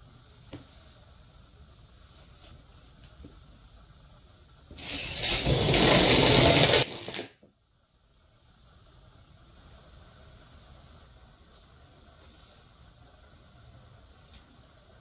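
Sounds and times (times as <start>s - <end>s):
dominoes toppling: 4.8s - 7.3s.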